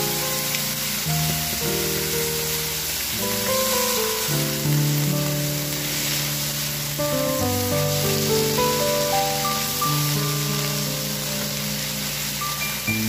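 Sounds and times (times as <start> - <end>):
vegetables sizzling in oil: 0.0 - 13.0
background music: 12.0 - 13.0.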